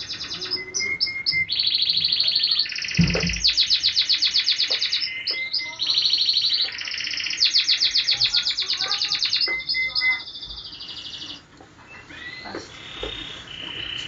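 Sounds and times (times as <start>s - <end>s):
small birds chirping in trills: 0.0s - 14.0s
dull thump: 3.0s - 3.5s.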